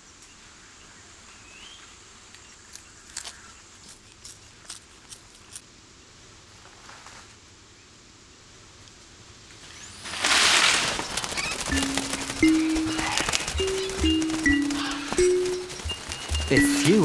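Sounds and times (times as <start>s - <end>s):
forest background: 0.0s - 17.0s
monkey crunching charcoal: 2.6s - 5.7s, 12.4s - 17.0s.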